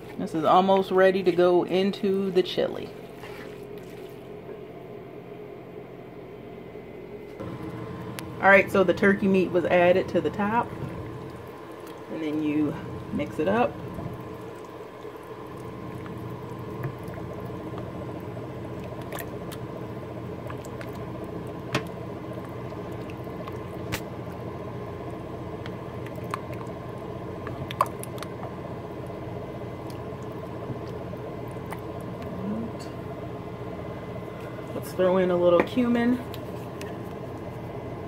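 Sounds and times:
steady low hum: 0.0 - 38.0
wet squishing and sloshing: 2.8 - 4.5, 10.4 - 32.6.

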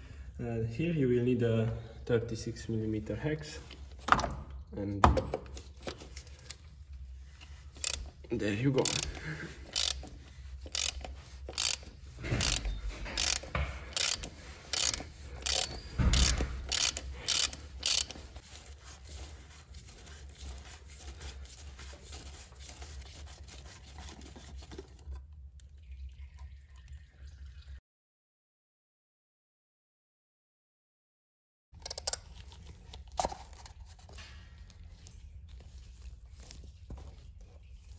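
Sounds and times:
rubbing and handling sounds: 5.5 - 25.2, 32.2 - 37.9
ratchet wrench clicking: 7.8 - 8.1, 8.8 - 18.2.

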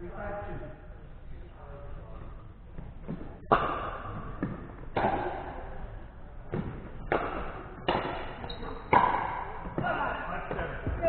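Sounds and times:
paddles hitting ball: 2.8 - 5.8, 6.4 - 11.0.

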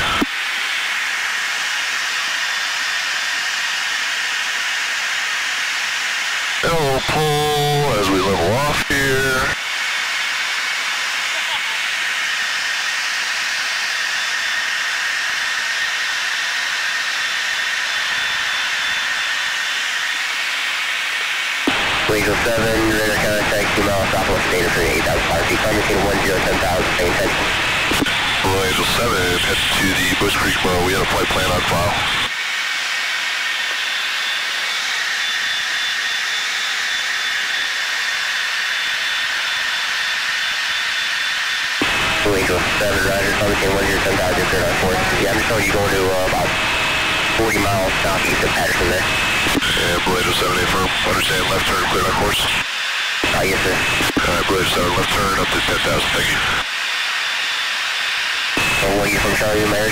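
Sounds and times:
jet noise hiss: 0.0 - 37.9
faint high whine: 0.0 - 59.9.

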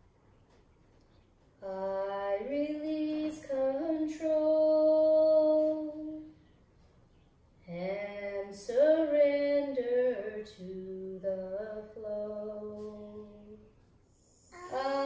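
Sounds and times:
woman singing unaccompanied: 1.6 - 6.3, 7.6 - 13.7, 14.5 - 15.0.

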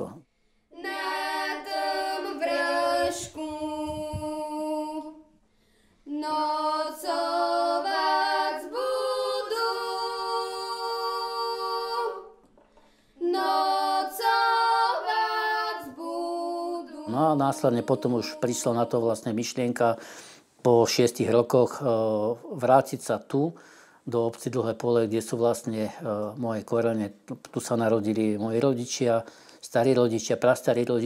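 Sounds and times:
person singing unaccompanied: 0.8 - 5.3, 6.1 - 12.4, 13.2 - 19.5.

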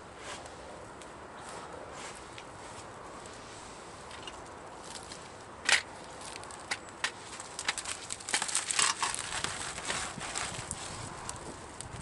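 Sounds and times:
dry grass and twigs crunching: 0.2 - 12.0
twig snapping: 4.8 - 10.0.

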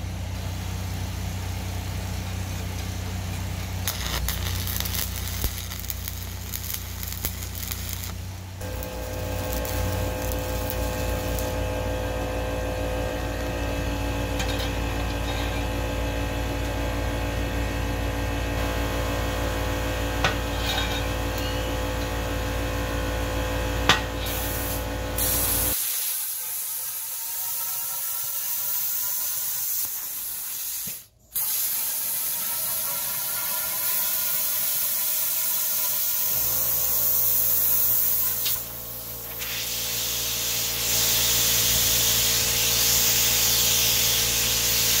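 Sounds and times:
arc welder humming and crackling: 0.0 - 45.0
plasma cutter hissing: 3.5 - 11.7, 24.2 - 45.0.

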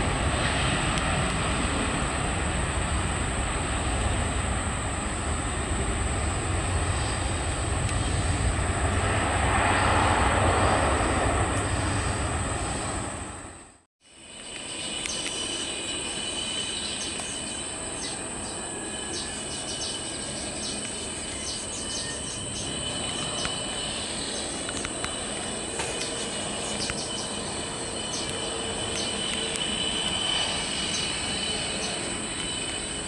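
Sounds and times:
high-pitched insect drone: 14.0 - 33.0.

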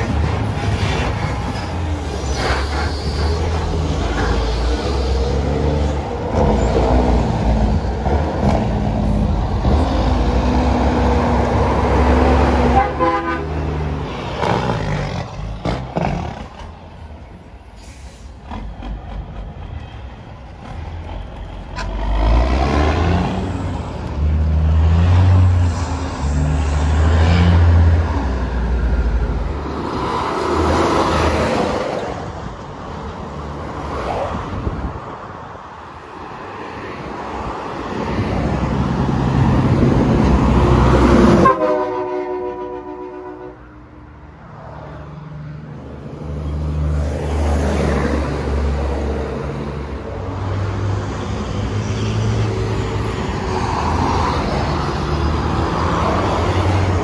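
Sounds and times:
heavy diesel truck engine: 0.0 - 33.8, 34.5 - 57.0
truck horn: 12.4 - 13.9, 41.2 - 44.0.

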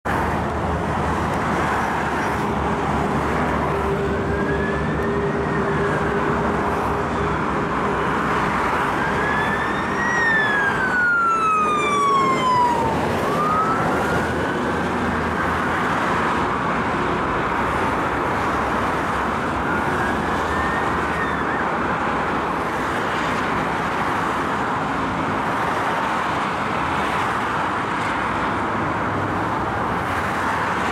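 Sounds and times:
motorway traffic: 0.0 - 30.9
fire engine sirens wailing: 1.0 - 28.1.

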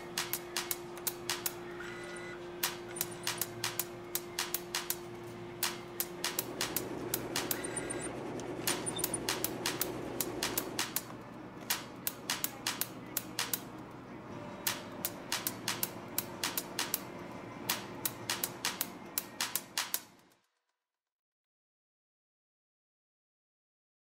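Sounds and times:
faint steady hum: 0.0 - 19.2
sharp clicks: 0.1 - 1.6, 2.6 - 5.0, 5.6 - 13.7, 14.7 - 17.0, 17.7 - 20.1.

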